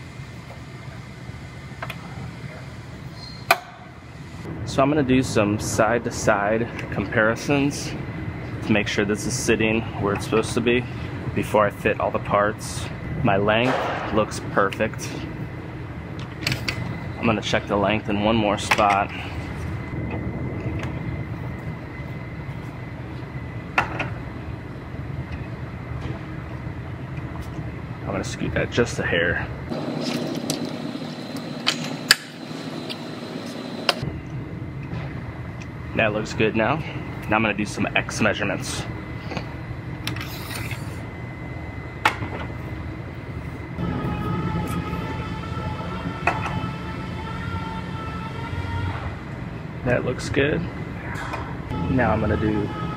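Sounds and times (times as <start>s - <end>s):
low shop drone: 0.0s - 52.9s
low workshop rumble: 0.0s - 52.9s
machine whine: 0.0s - 52.9s
thin high whine: 29.7s - 34.8s, 35.9s - 49.2s, 51.7s - 52.9s.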